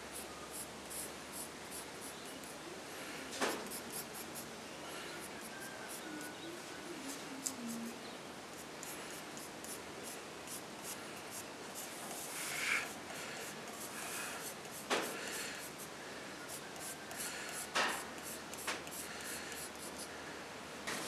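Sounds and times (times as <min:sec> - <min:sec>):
pencil scratching on wood: 0:03.5 - 0:04.4, 0:16.5 - 0:20.1.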